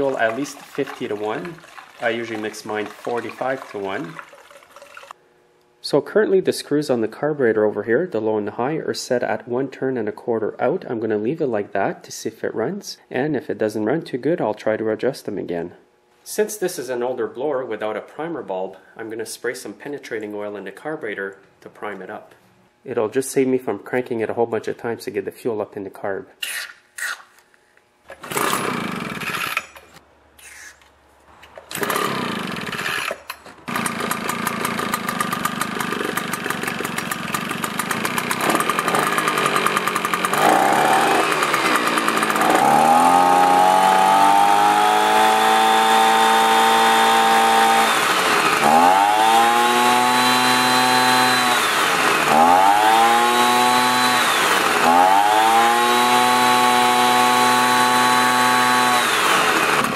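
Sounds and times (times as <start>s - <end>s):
leaf blower engine starting and revving: 28.1s - 29.8s, 31.7s - 59.9s.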